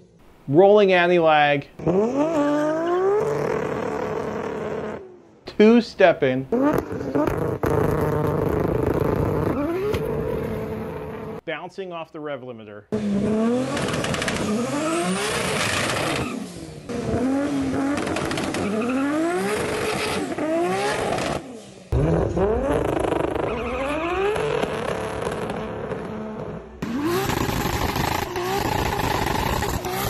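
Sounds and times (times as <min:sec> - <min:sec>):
car engine revving hard: 0:01.8 - 0:05.1, 0:06.5 - 0:11.4, 0:13.0 - 0:30.0
tyre squeal: 0:22.0 - 0:26.4.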